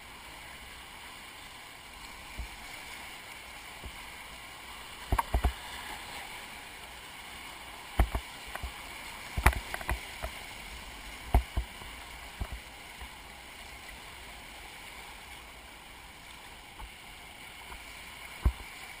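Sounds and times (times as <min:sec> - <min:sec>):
sharp thumps on a kayak: 0:05.1 - 0:05.6, 0:08.0 - 0:08.7, 0:09.3 - 0:10.3, 0:11.3 - 0:11.7, 0:18.4 - 0:18.7.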